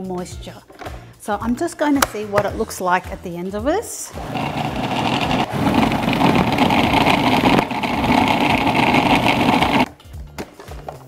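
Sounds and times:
food processor motor running: 0:04.2 - 0:09.9.

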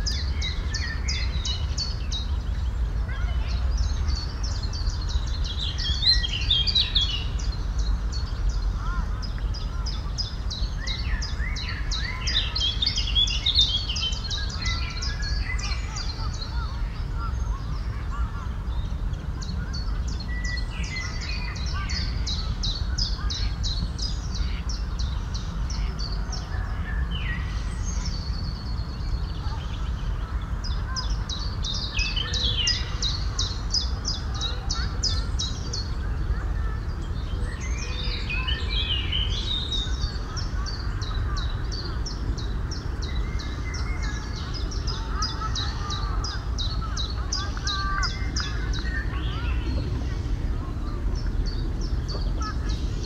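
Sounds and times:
low background rumble: 0:00.0 - 0:53.0
songbirds singing: 0:00.0 - 0:53.0.

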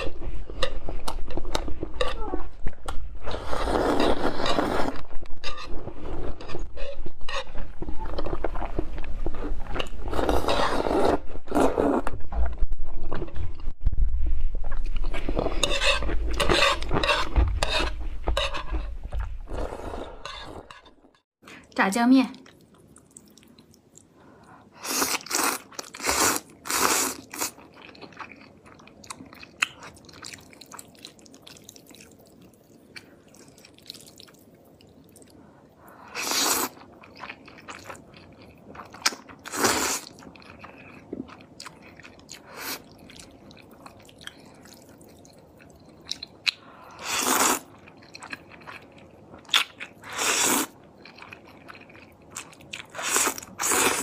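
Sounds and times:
person slurping noodles: 0:03.2 - 0:05.0, 0:09.4 - 0:12.1, 0:19.5 - 0:20.7, 0:24.8 - 0:27.6, 0:36.1 - 0:36.8, 0:47.0 - 0:47.7, 0:50.0 - 0:50.8, 0:52.9 - 0:54.0.

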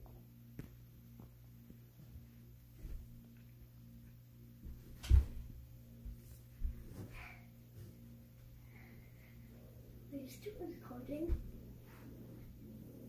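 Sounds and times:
steady low hum: 0:00.0 - 0:13.0
hands and feet thudding on carpet: 0:04.6 - 0:08.1
loud landing thump: 0:05.0 - 0:05.5.

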